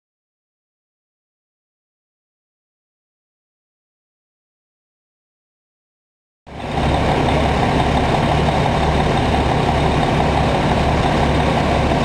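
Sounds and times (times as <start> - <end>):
fire truck engine running: 6.5 - 12.0.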